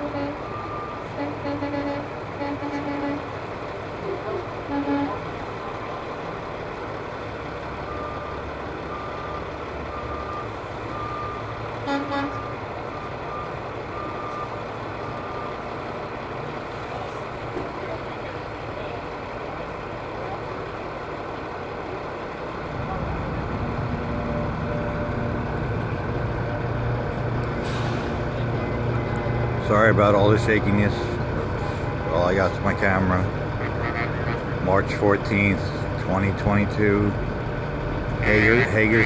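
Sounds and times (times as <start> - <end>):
truck horn blasts: 0.0 - 3.3, 4.6 - 5.3, 11.8 - 12.5, 33.5 - 34.6, 38.2 - 39.0
truck diesel engines rumbling: 0.0 - 39.0.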